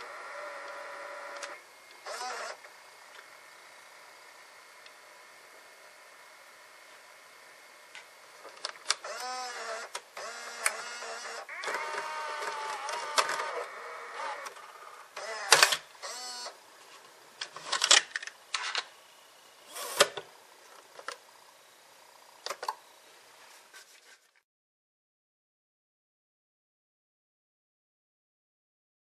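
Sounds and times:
tape mechanism whirring: 0:00.0 - 0:02.6, 0:08.9 - 0:16.6.

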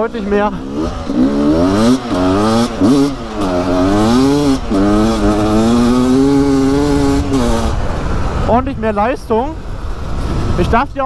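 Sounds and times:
two-stroke engine accelerating: 0:00.0 - 0:08.7.

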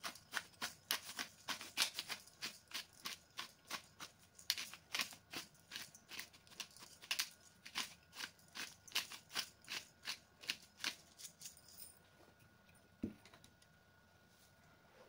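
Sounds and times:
pepper mill grinding: 0:00.0 - 0:11.9.

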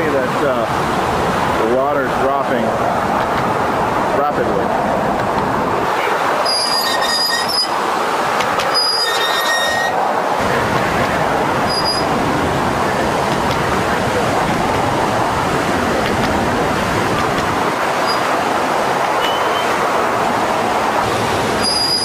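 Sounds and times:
floodwater rushing: 0:00.0 - 0:22.0.

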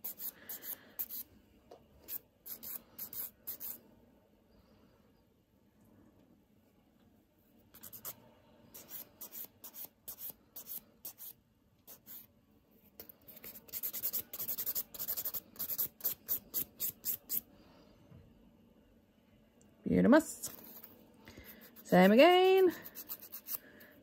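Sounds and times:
nail file rasping on nails: 0:00.0 - 0:01.2, 0:02.1 - 0:03.8, 0:07.8 - 0:08.2, 0:08.8 - 0:12.2, 0:13.3 - 0:17.4, 0:21.6 - 0:23.6.

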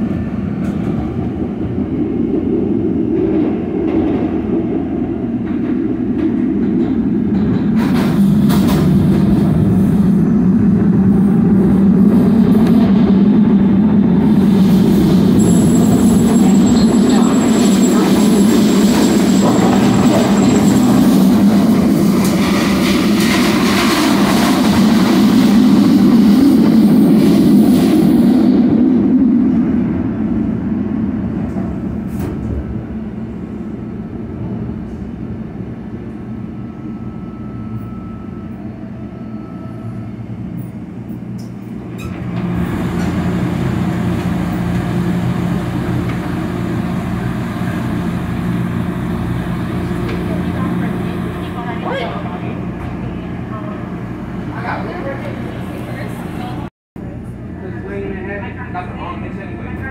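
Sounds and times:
trolley wheels rumbling: 0:02.1 - 0:25.7.

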